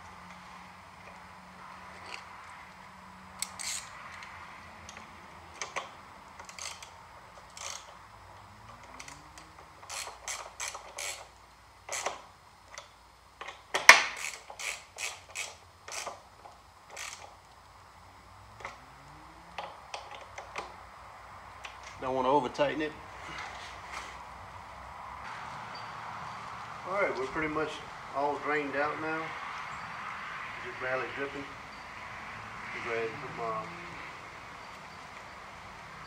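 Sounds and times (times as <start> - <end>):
ratchet wrench clicking: 3.4 - 4.3, 4.9 - 8.0, 9.0 - 11.3, 11.9 - 16.2, 16.9 - 17.4.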